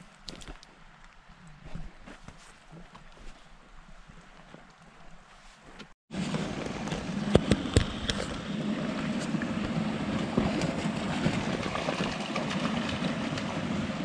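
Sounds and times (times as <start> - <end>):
creek water rushing: 6.2 - 14.0.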